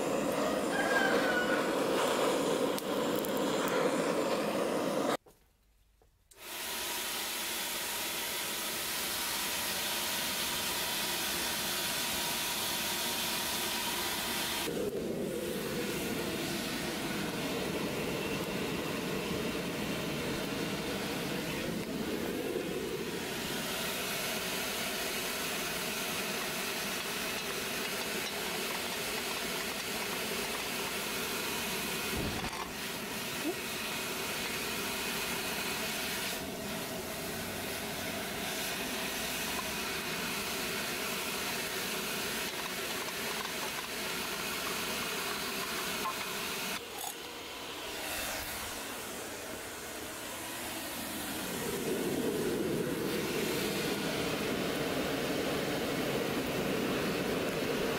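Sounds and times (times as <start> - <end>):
forge hissing and humming: 0.0 - 5.2, 6.3 - 57.9
hot blade hissing in oil: 0.0 - 5.2, 6.4 - 14.8, 22.2 - 47.2.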